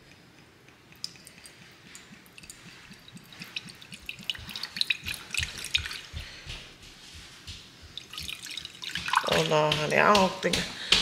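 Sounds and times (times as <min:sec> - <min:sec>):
liquid pouring into a mug: 0:00.9 - 0:06.2, 0:08.0 - 0:09.6.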